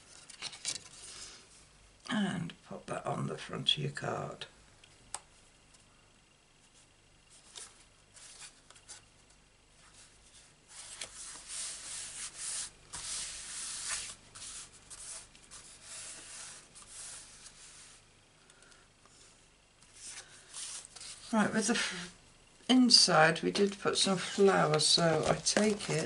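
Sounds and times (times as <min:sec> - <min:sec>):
hands rubbing paper: 0:10.7 - 0:18.0.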